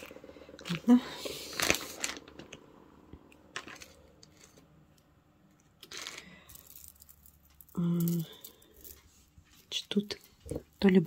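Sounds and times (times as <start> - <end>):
jewelry clicking and clinking: 3.4 - 11.0.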